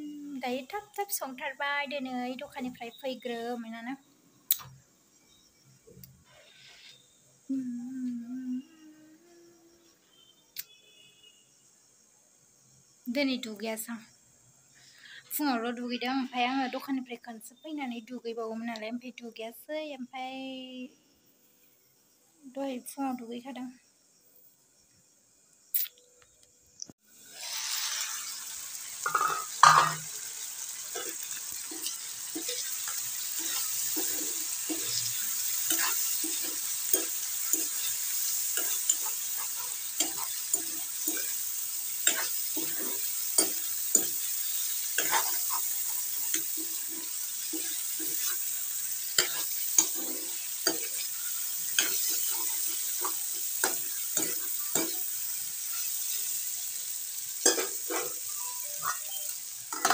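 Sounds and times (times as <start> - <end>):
food sizzling in hot oil: 0.0 - 7.6, 26.8 - 59.9
metal spatula scraping a wok: 6.3 - 7.0, 27.3 - 56.4, 57.4 - 59.9.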